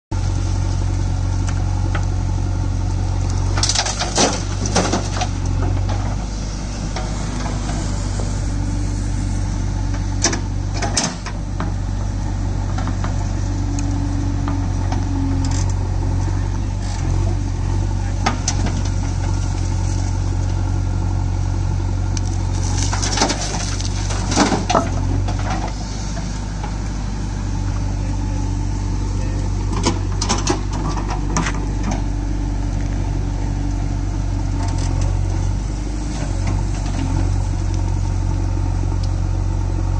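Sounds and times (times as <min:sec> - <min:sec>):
diesel engine under load: 0:00.1 - 0:39.9
earth and stones dumped into trolley: 0:03.5 - 0:05.4, 0:22.4 - 0:26.1.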